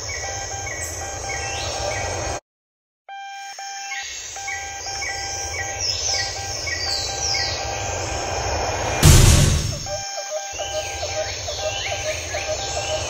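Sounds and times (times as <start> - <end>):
low rumble: 8.7 - 10.0
repeated short pitched note: 9.0 - 10.0.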